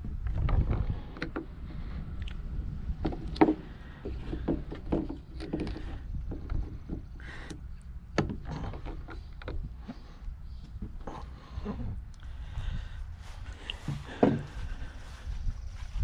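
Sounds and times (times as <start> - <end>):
plastic pipe fittings clicking: 0.3 - 1.6, 3.0 - 11.2.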